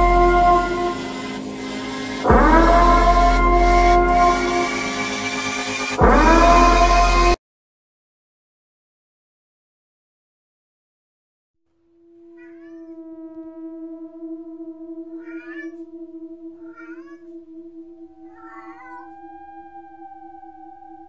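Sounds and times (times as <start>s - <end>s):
steady droning tone: 0.0s - 7.4s, 12.0s - 21.0s
cat yelling: 12.3s - 13.0s, 15.2s - 15.8s, 16.6s - 17.3s, 18.2s - 19.3s.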